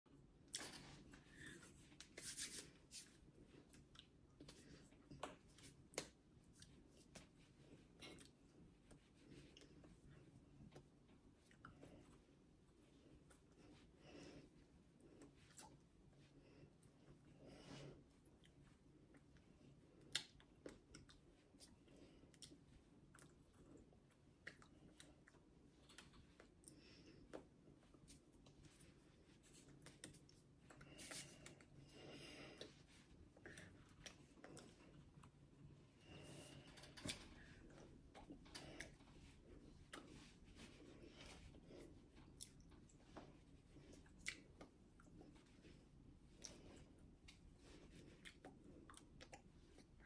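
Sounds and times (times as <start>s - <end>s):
hands and sleeves rustling: 0.6s - 14.3s, 25.8s - 48.6s.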